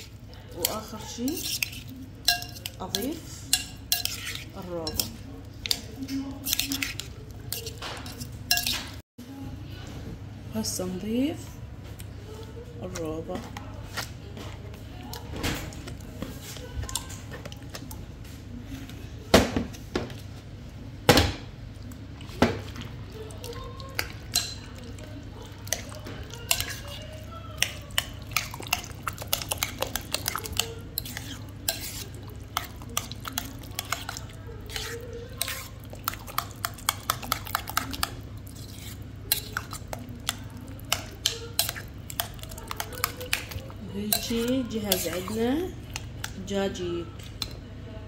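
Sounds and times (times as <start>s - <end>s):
spoon clinking against bowl: 0.6s - 5.8s, 6.4s - 8.9s, 23.4s - 24.9s, 25.6s - 45.4s.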